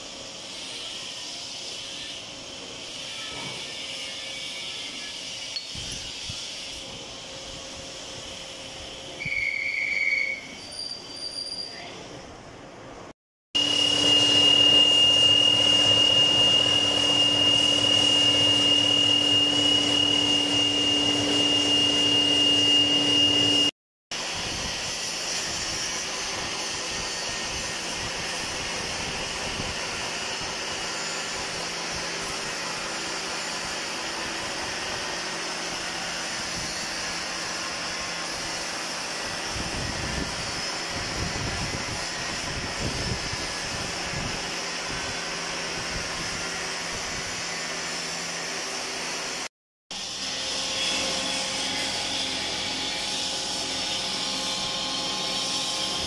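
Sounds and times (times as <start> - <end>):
lathe running hum: 13.6 - 41.2, 50.0 - 56.0
lathe cutting whine: 13.6 - 49.4, 50.0 - 56.0.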